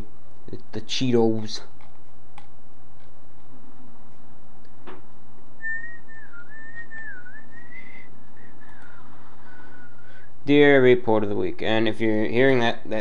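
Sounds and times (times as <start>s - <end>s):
computer fan humming: 0.0s - 13.0s
thin whistling whine: 5.6s - 10.3s.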